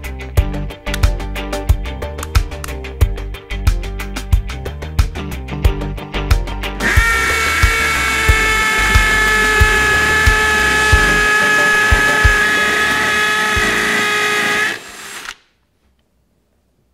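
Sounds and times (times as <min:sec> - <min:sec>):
low music beat: 0:00.4 - 0:14.0
hammer drill whine: 0:06.8 - 0:15.4.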